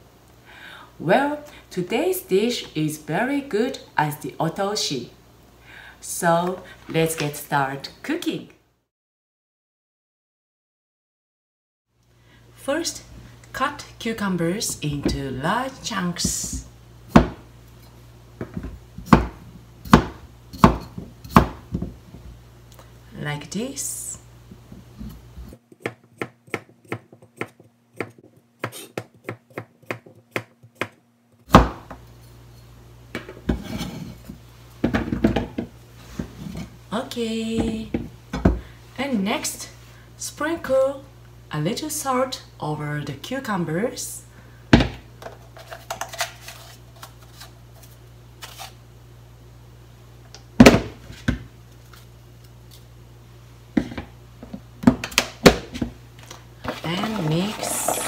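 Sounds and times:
knife chopping on plastic board: 0:25.8 - 0:31.8
cut pieces rustling and knocking: 0:53.8 - 0:58.0
plastic container set down: 0:56.6 - 0:58.0.

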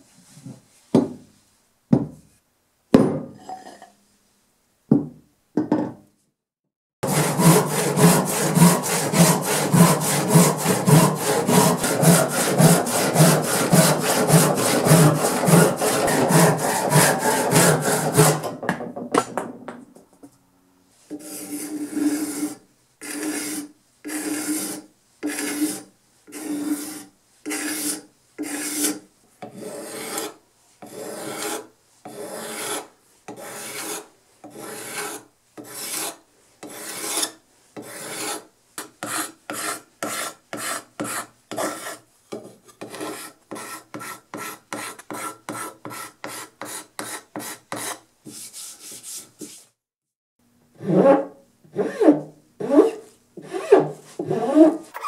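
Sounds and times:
card scraper shaving wood: 0:07.0 - 0:18.5
hand saw cutting wood: 0:07.0 - 0:18.6, 0:21.1 - 0:49.3, 0:50.8 - 0:55.0.

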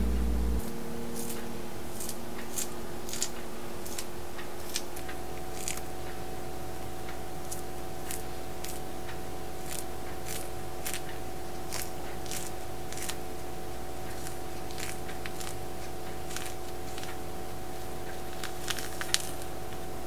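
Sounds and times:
steady hum: 0:00.0 - 0:20.0
fruit peel tearing: 0:02.0 - 0:06.0, 0:07.5 - 0:08.9, 0:09.6 - 0:13.3, 0:14.1 - 0:17.2.

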